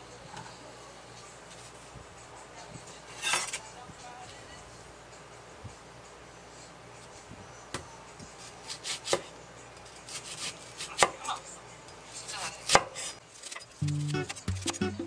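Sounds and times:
knife cutting onion: 8.2 - 11.4, 12.3 - 14.8.

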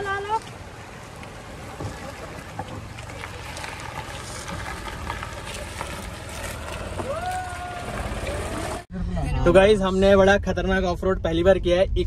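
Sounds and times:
wheels knocking and rattling: 0.0 - 8.9
car engine rumble: 0.0 - 12.0.

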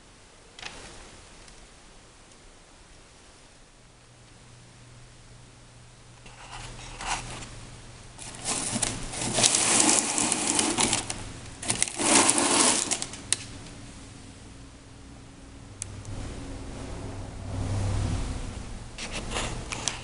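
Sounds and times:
crinkling rustling: 8.2 - 13.8.

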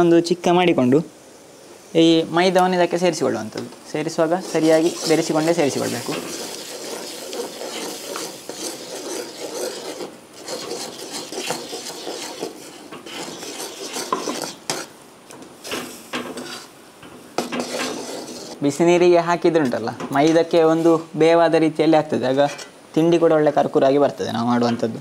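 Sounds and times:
metal ladle scraping pan: 4.3 - 15.0, 15.6 - 18.6.

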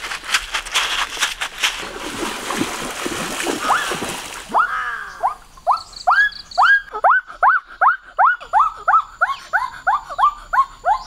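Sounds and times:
quick running footsteps: 0.0 - 4.3
water splashing while wading: 1.1 - 4.6.

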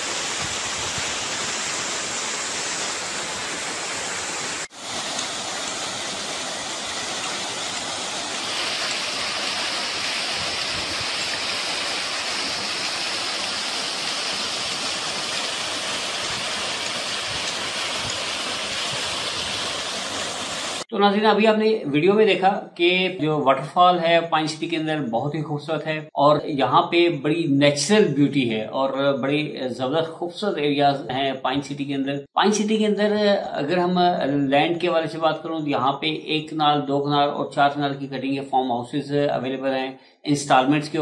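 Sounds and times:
waterfall rushing: 0.0 - 20.9.

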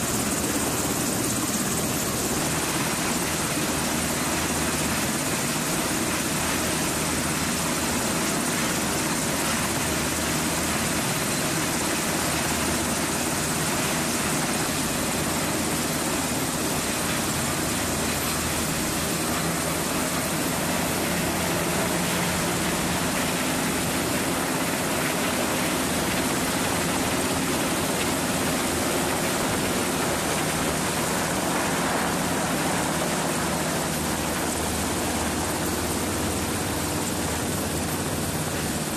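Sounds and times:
helicopter engines and rotors: 0.0 - 38.9.

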